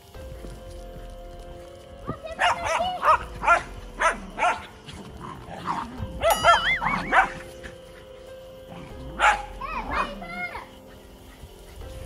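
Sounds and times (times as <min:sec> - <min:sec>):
small dog barking: 0:02.2 - 0:04.9, 0:05.6 - 0:07.6, 0:09.0 - 0:10.8.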